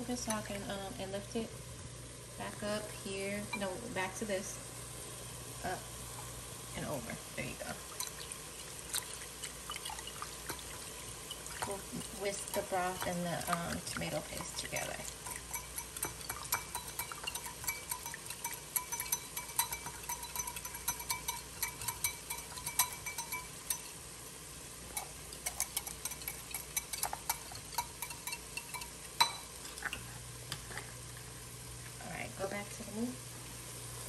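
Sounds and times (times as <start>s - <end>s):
whisk clicking against glass bowl: 11.6s - 24.0s, 25.0s - 29.9s.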